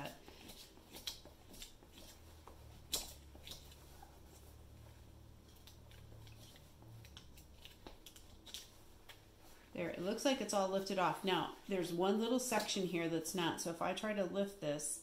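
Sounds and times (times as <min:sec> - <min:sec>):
steady low hum: 0:00.0 - 0:14.8.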